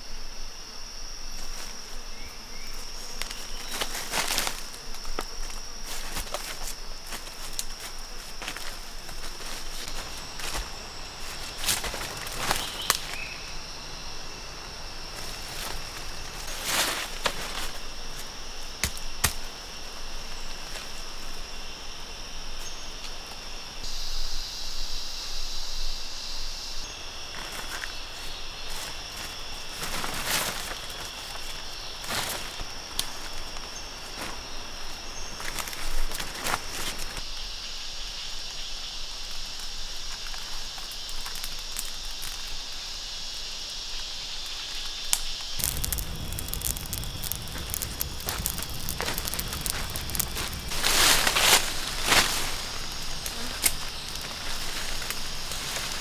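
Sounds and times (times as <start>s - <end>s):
insect chorus drone: 0.0s - 56.0s
footsteps in dry leaf litter: 1.3s - 13.8s, 15.0s - 18.9s, 27.3s - 37.3s, 45.5s - 56.0s.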